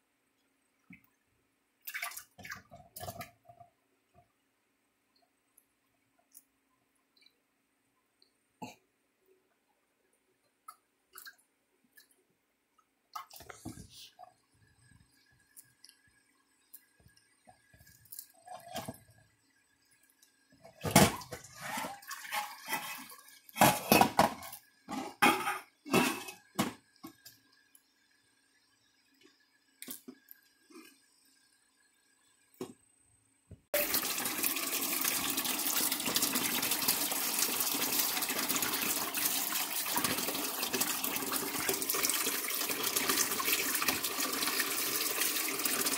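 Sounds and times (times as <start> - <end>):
water splashing in a sink: 1.8 - 3.6, 10.6 - 12.2, 12.8 - 19.2, 19.8 - 24.6, 33.8 - 45.9
faucet running into sink: 33.8 - 45.9.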